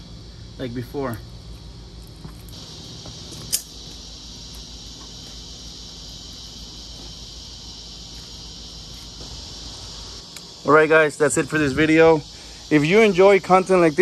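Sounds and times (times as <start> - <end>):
insect chorus buzzing: 0.0 - 14.0
low background hum: 0.0 - 14.0
sharp click: 3.3 - 3.8.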